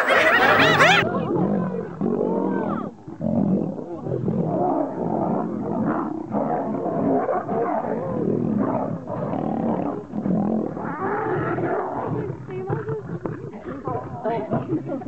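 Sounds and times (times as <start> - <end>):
wild animals calling: 0.0 - 1.0.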